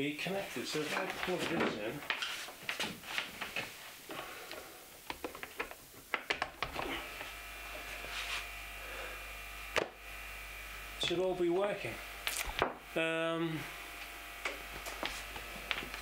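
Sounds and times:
air compressor humming: 3.7s - 16.0s.

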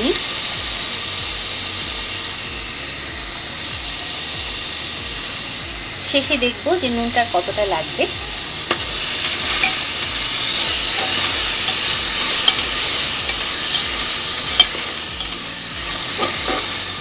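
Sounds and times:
onion sizzling in hot oil: 0.0s - 17.0s
spatula stirring and scraping: 8.6s - 17.0s.

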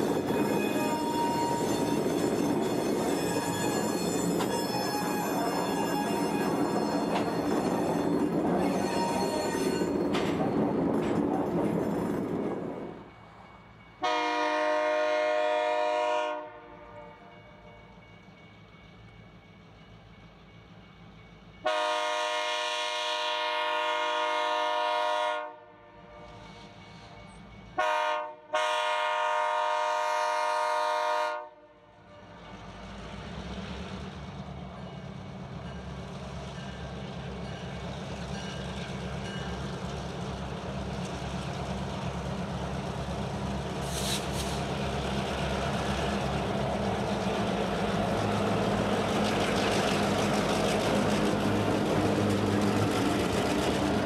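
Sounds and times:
diesel engines and rolling train rumble: 0.0s - 54.0s
locomotive air horn blasts: 14.0s - 17.3s, 21.6s - 26.4s, 27.8s - 31.9s.

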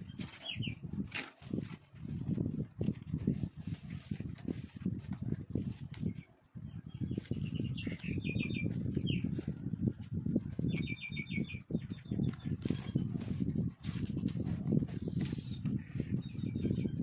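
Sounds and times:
small birds chirping: 0.0s - 0.9s, 5.2s - 17.0s.

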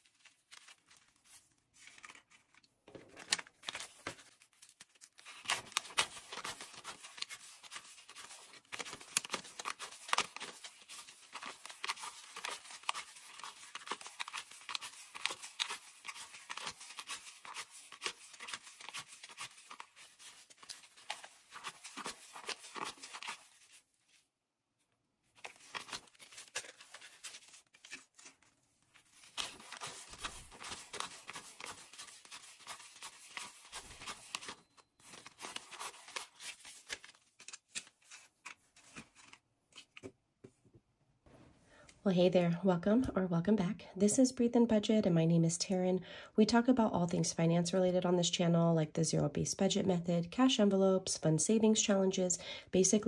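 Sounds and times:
banknotes rustling and flicking: 0.0s - 24.2s, 25.4s - 40.1s.

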